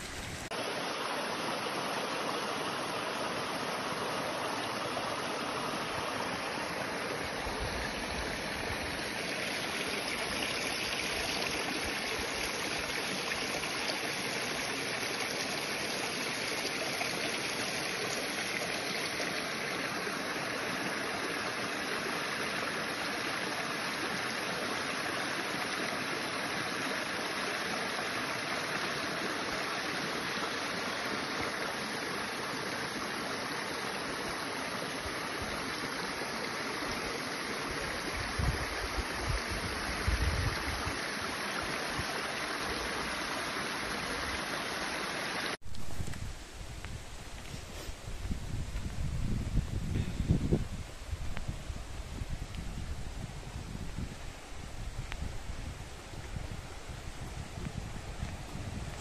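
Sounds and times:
water cascading over stones: 0.0s - 46.3s.

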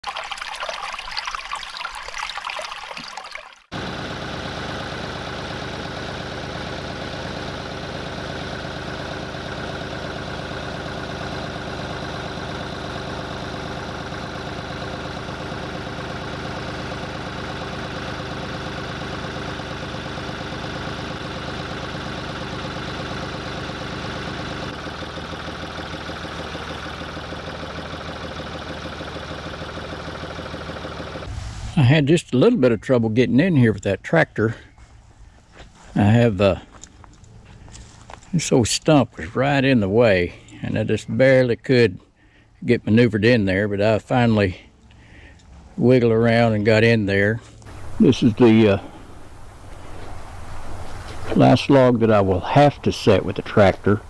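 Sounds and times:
tractor engine running: 3.6s - 31.4s, 44.0s - 54.0s.

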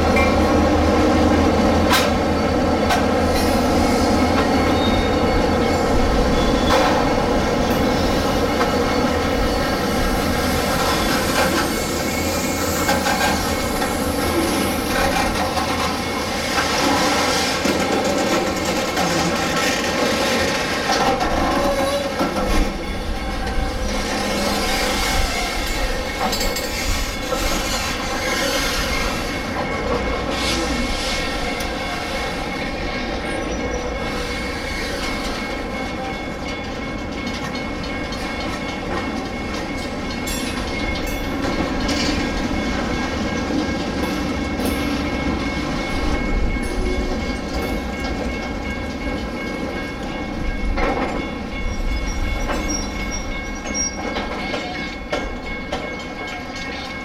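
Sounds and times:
freight train cars rolling past: 0.0s - 57.0s
wheels clacking over rail joints: 1.3s - 5.7s, 10.5s - 24.8s.

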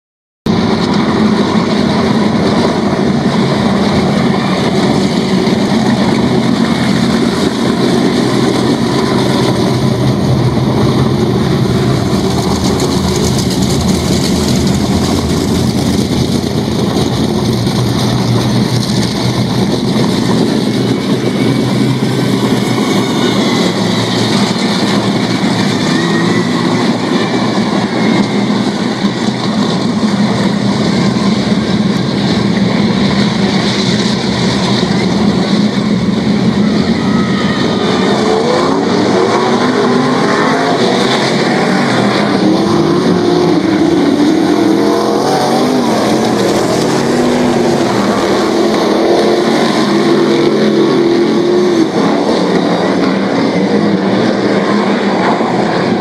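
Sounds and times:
racing car engines: 0.5s - 56.0s.

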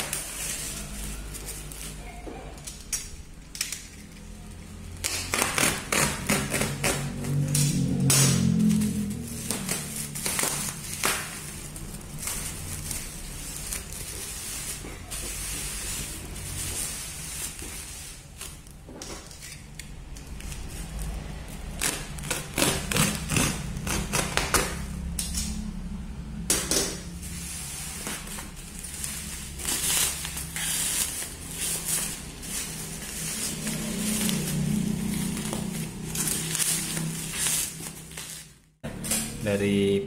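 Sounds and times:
bubble wrap crinkling and snapping: 0.0s - 25.5s, 27.2s - 38.8s.

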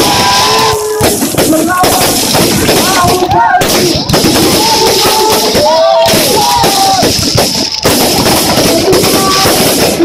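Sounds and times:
dense crackle: 0.0s - 10.0s.

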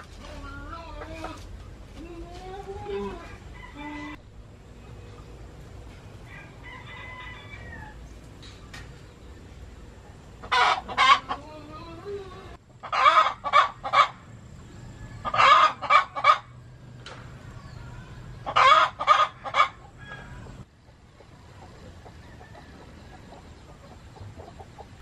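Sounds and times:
chicken calling: 0.0s - 4.2s, 10.4s - 16.6s, 17.6s - 25.0s.

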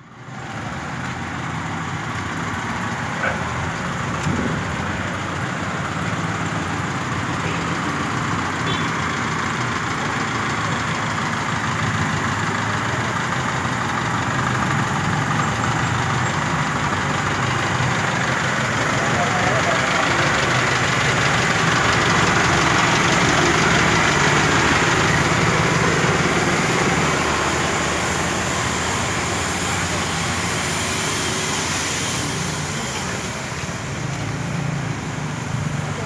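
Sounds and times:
truck engine running at low speed: 0.0s - 36.0s.

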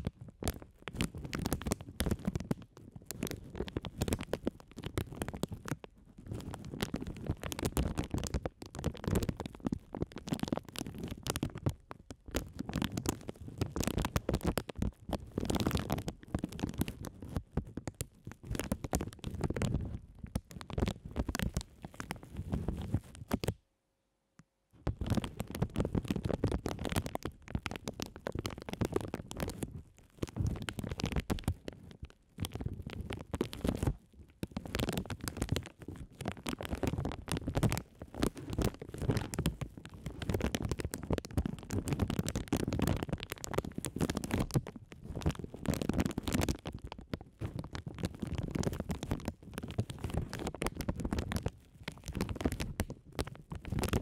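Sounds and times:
plastic bags crinkling: 24.9s - 54.0s.

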